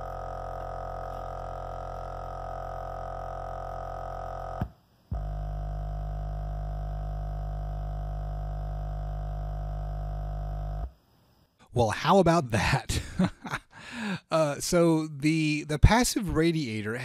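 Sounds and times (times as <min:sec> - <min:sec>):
low bass test tone: 0:00.0 - 0:10.9
buzzing speaker distortion: 0:00.0 - 0:17.0.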